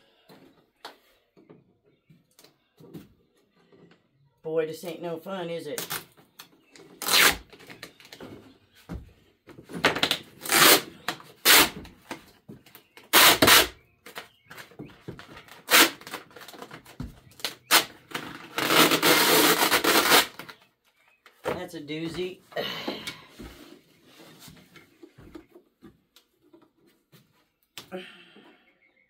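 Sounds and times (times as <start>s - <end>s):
long rasping plastic scrape: 17.4s - 20.6s.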